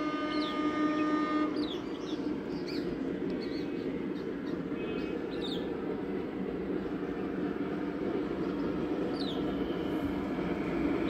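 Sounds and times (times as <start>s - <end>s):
locomotive horn: 0.0s - 1.7s
birds chirping: 0.0s - 9.8s
distant train rumble: 0.0s - 11.0s.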